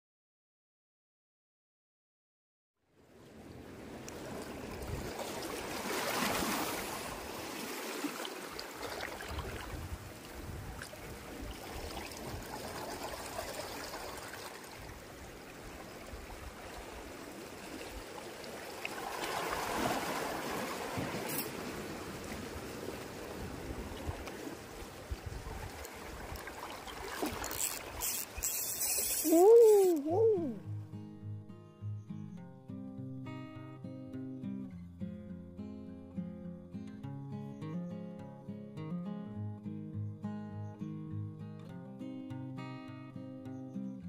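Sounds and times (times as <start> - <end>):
small waves lapping on rocks: 3.1 - 30.0.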